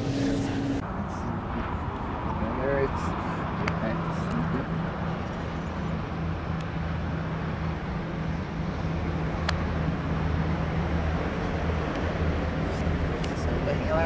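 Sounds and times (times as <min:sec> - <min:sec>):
low engine hum: 0:00.0 - 0:14.0
traffic noise: 0:00.0 - 0:14.0.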